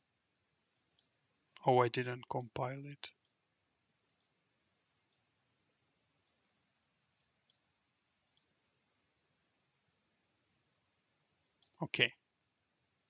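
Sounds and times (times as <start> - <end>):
faint computer mouse clicks: 0.7 - 1.1, 3.1 - 3.4, 4.1 - 4.4, 5.0 - 5.2, 6.2 - 6.4, 7.2 - 8.5, 11.4 - 11.8.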